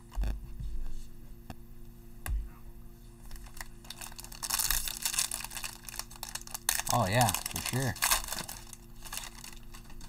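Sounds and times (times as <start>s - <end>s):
foil wrapper crinkling and tearing: 3.3s - 10.0s.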